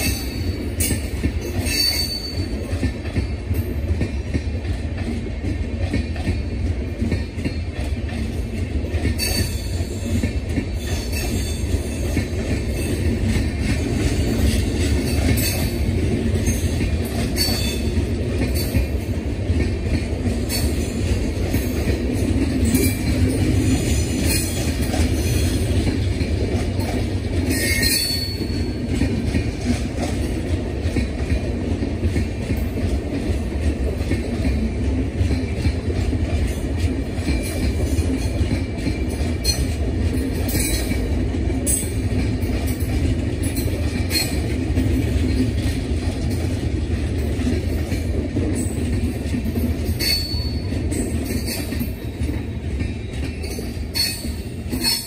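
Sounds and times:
train wheels rumbling on rails: 0:00.0 - 0:55.0
wheel squeal: 0:01.6 - 0:02.5.

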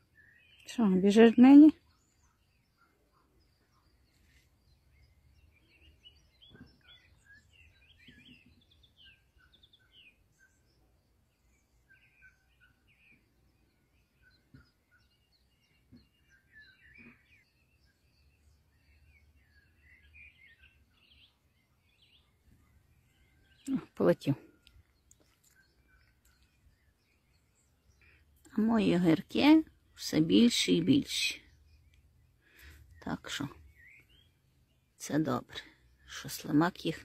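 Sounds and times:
birds chirping and twittering: 0:00.0 - 0:37.0.

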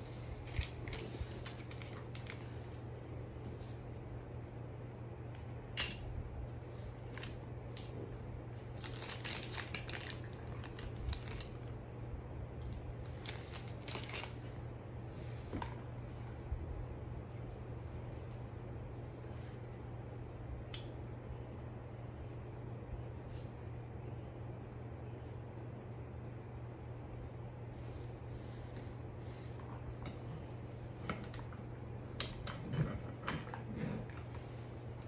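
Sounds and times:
steady low hum: 0:00.0 - 0:35.0
plastic bag crinkling: 0:00.3 - 0:02.8, 0:08.6 - 0:11.7, 0:13.0 - 0:14.4.

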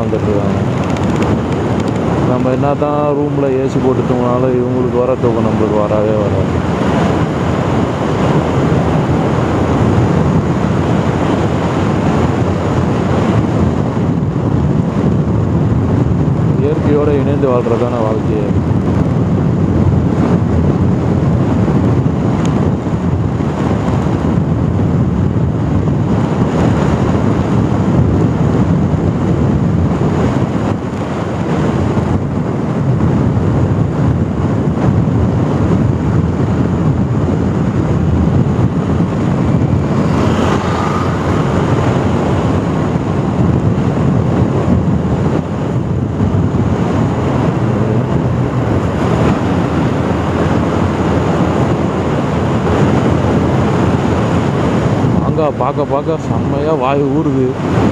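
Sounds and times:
road noise: 0:00.0 - 0:57.9
wind on microphone: 0:00.0 - 0:57.9
motorcycle engine: 0:19.6 - 0:55.1.

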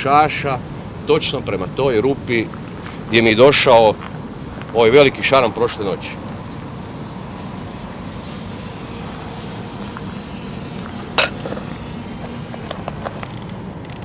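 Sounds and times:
fishing reel light clicks: 0:13.2 - 0:14.0.

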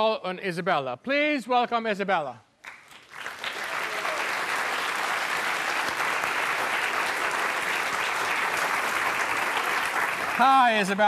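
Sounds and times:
audience applauding: 0:02.6 - 0:11.0.

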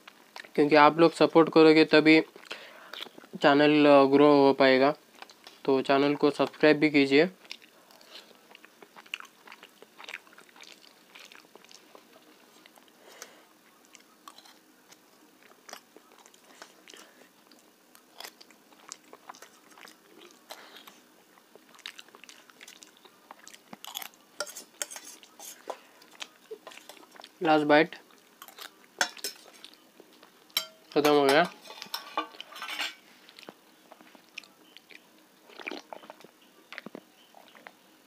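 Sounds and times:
chewing and wet mouth sounds: 0:00.0 - 0:00.6, 0:02.3 - 0:03.3, 0:05.1 - 0:05.6, 0:07.4 - 0:27.4, 0:28.0 - 0:30.6, 0:33.2 - 0:37.8
spoon clicking on steel plate: 0:30.6 - 0:33.0.

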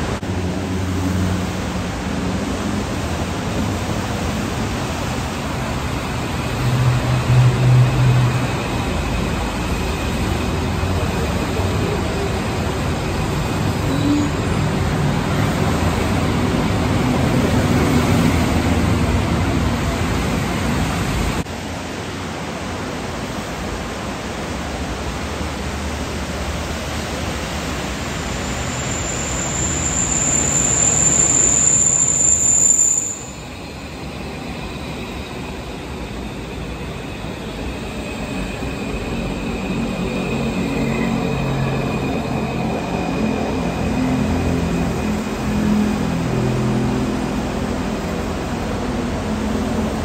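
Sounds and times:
train rumbling: 0:00.0 - 0:50.0
high steady squeal: 0:27.4 - 0:48.8.

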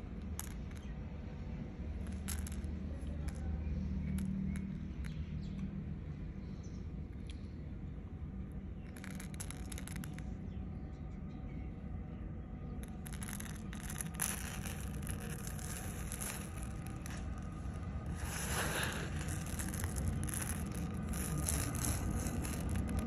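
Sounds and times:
steady low rumble: 0:00.0 - 0:23.0
rice grains rustling and pattering: 0:02.0 - 0:03.5, 0:08.9 - 0:10.2, 0:12.8 - 0:23.0.

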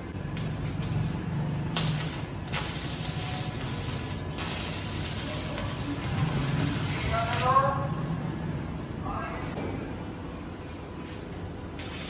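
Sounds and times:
welding arc crackling and hissing: 0:00.2 - 0:07.7, 0:11.7 - 0:12.0.

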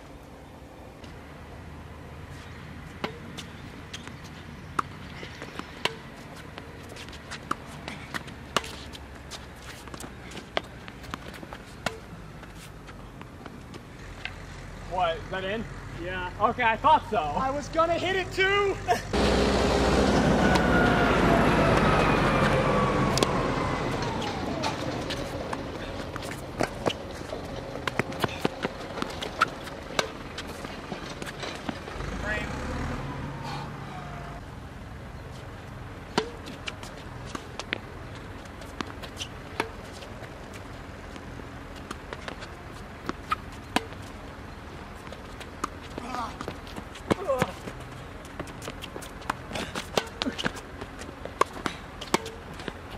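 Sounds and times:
racket hitting tennis ball: 0:03.0 - 0:13.6, 0:23.9 - 0:31.9, 0:36.1 - 0:40.6, 0:41.8 - 0:44.3, 0:45.0 - 0:52.8
loud engine passing by: 0:19.1 - 0:34.5
ball bouncing on court: 0:36.1 - 0:36.6.

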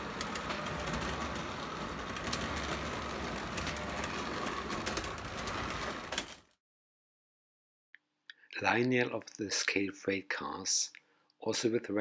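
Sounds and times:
toy train rapid clicks: 0:00.0 - 0:05.8
toy train rumble and whine: 0:00.0 - 0:06.3.

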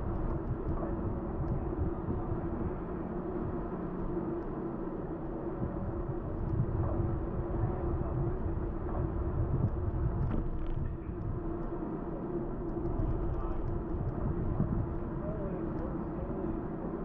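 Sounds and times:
steady hum: 0:00.0 - 0:17.0
wind buffeting microphone: 0:00.0 - 0:17.0.

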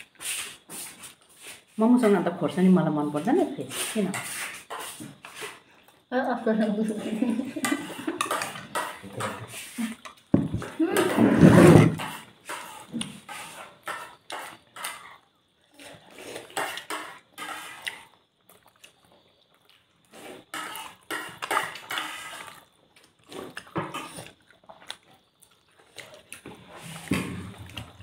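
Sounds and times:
chewing and lip-smacking: 0:15.9 - 0:28.0.

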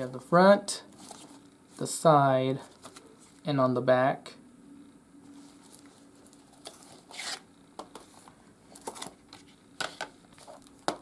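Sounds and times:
faint steady hum: 0:00.0 - 0:11.0
cardboard sliding scrape: 0:06.7 - 0:07.4.

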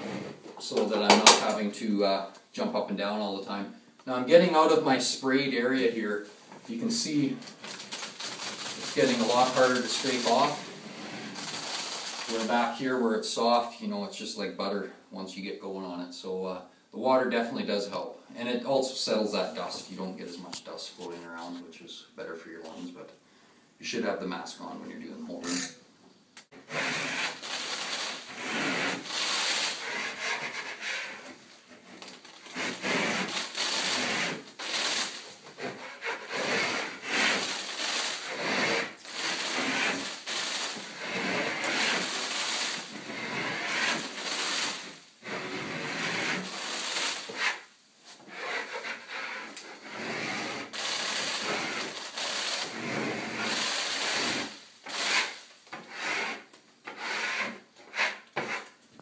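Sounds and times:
metal scraper scraping ceiling: 0:00.0 - 0:01.6, 0:06.7 - 0:12.8, 0:26.5 - 0:58.8.

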